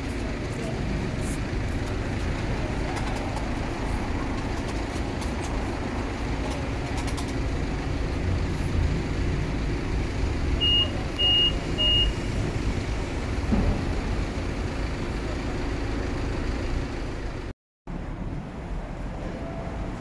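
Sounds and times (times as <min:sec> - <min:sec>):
traffic rumble: 0:00.0 - 0:20.0
short high beeps: 0:10.6 - 0:12.3.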